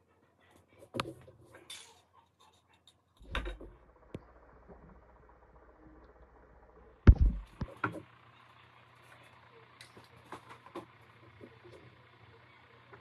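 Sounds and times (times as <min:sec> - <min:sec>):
sharp knocks: 0:07.1 - 0:07.7.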